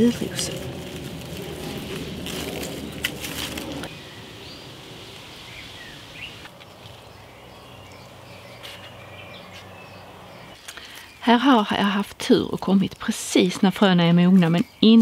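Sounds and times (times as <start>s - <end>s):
foliage rustling: 0.0s - 9.8s.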